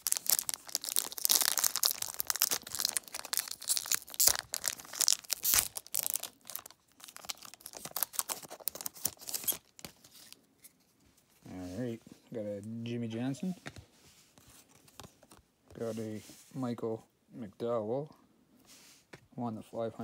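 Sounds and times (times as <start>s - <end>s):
foil wrapper tearing and crinkling: 0.0s - 10.1s.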